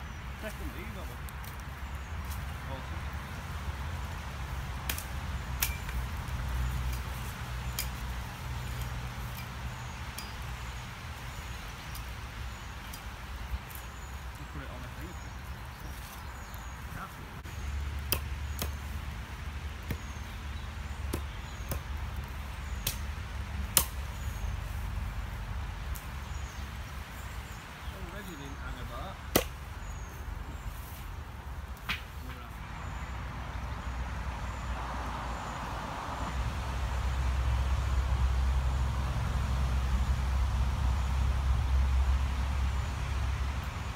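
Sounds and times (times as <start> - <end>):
hatchet chopping wood: 4.8 - 6.2, 18.0 - 18.9, 19.8 - 20.2, 21.0 - 23.1, 23.7 - 24.1, 29.3 - 29.6
wood cracking: 29.2 - 29.8.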